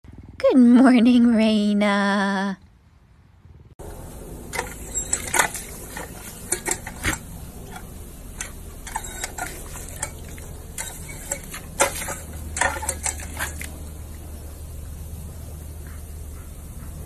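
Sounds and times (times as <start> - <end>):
dog lapping water: 4.4 - 14.3.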